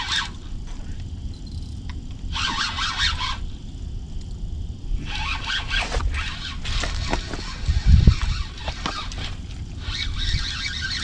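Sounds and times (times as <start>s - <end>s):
fishing reel buzzing: 0.0s - 0.4s, 1.3s - 3.5s, 5.0s - 11.0s
low steady rumble: 0.0s - 11.0s.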